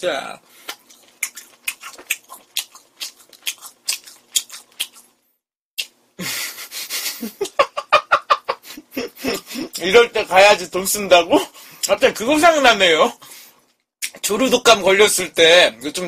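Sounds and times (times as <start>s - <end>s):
man chewing food: 0.5s - 5.9s, 8.6s - 9.8s
wet mouth clicks and smacks: 0.6s - 5.1s
breathy laugh: 6.2s - 9.8s.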